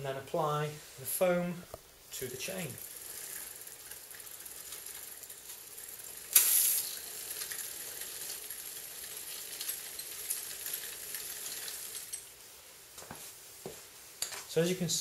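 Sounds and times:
bicycle freewheel ticking: 2.1s - 12.2s.

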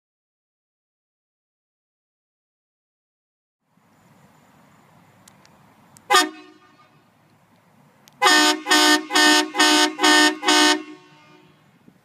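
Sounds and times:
air horn blasts: 6.1s - 7.0s, 8.2s - 11.7s.

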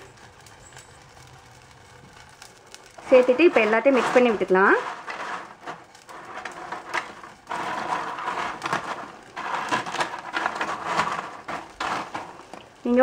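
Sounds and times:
crunchy snacks tossed in metal tray: 3.0s - 13.0s.

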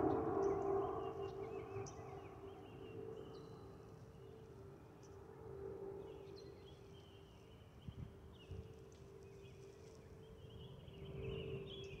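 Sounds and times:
aircraft whistling overhead: 0.0s - 3.2s.

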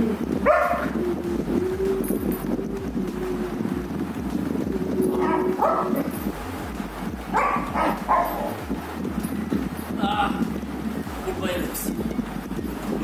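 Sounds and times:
paw thumps: 0.4s - 1.0s
dog whining: 0.4s - 3.9s, 4.7s - 6.2s.

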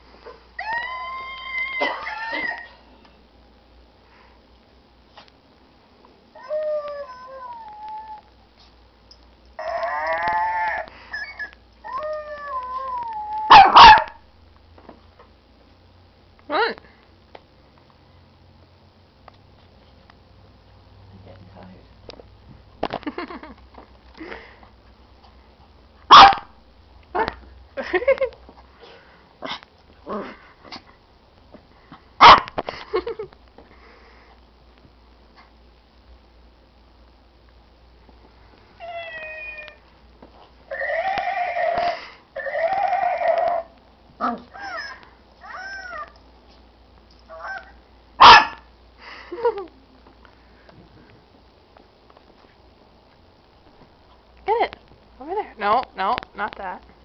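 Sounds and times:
recorded howl-like cry: 0.6s - 2.9s, 6.3s - 8.3s, 9.6s - 14.1s, 38.8s - 39.8s, 40.7s - 46.2s, 47.3s - 48.6s
loud sharp barks: 13.5s - 14.2s, 26.1s - 26.5s, 48.2s - 48.6s.

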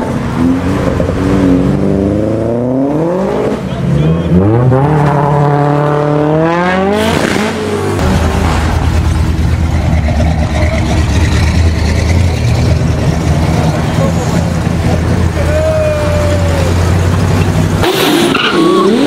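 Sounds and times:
car engine revving: 0.0s - 19.0s
old car engine rumbling: 8.0s - 19.0s.

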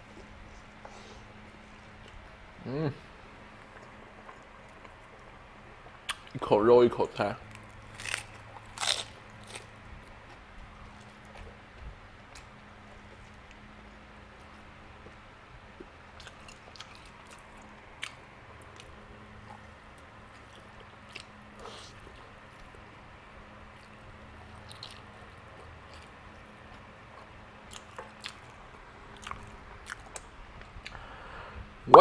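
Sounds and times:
chewing and biting meat: 7.5s - 22.8s, 23.7s - 30.3s.

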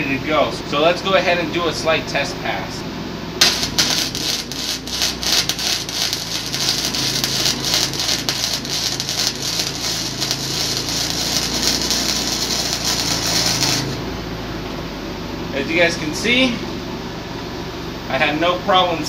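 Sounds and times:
arc welding crackle: 3.4s - 14.2s.

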